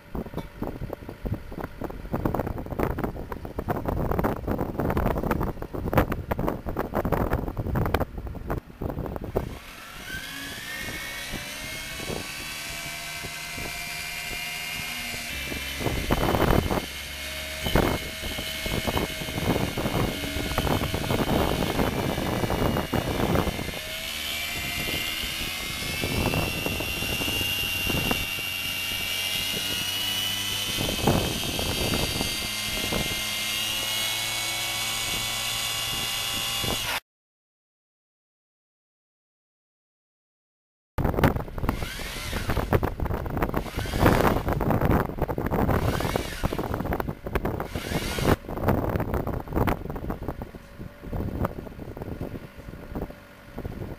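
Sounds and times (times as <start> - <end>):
drilling rig whine: 8.8 - 37.0, 41.3 - 53.9.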